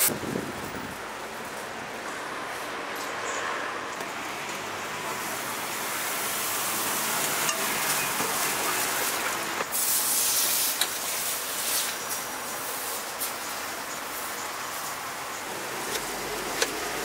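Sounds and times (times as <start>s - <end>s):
batter sizzling on griddle: 6.2s - 14.8s.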